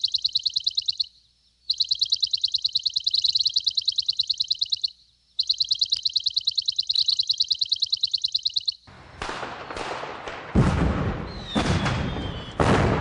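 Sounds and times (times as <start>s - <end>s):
fast pulsing electronic beep: 0.0s - 1.1s, 1.7s - 8.8s
fireworks bangs and crackling: 8.9s - 13.0s
falling whistle: 11.3s - 12.6s.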